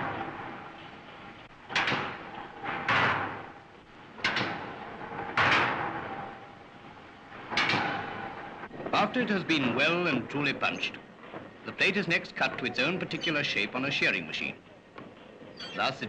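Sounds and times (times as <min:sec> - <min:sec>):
metal crash: 0:00.0 - 0:08.7
punching machine clanking: 0:00.0 - 0:08.7.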